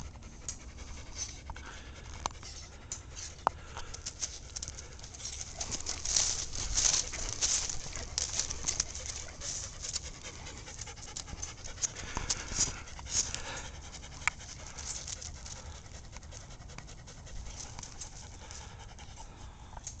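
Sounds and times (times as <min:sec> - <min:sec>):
dog panting: 0:00.0 - 0:20.0
sharp crackles: 0:03.9 - 0:10.6.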